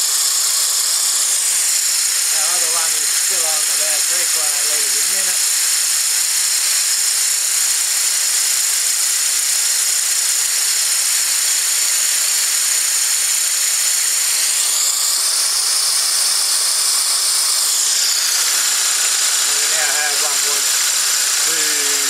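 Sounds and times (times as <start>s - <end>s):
compressed air hissing: 0.0s - 7.8s, 14.0s - 22.0s.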